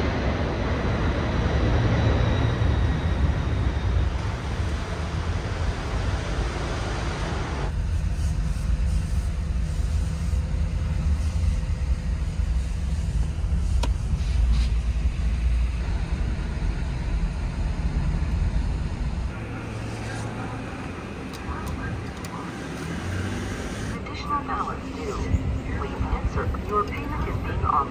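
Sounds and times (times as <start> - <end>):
car engine and road rumble: 0.0 - 27.8
hiss: 7.8 - 15.0.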